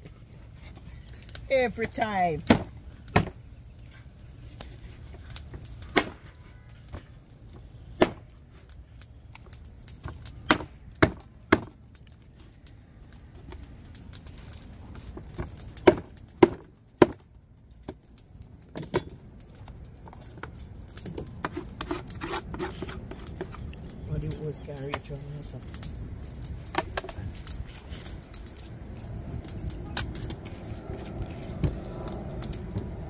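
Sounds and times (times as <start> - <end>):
blade chopping on wood: 15.8 - 17.2, 21.3 - 23.6.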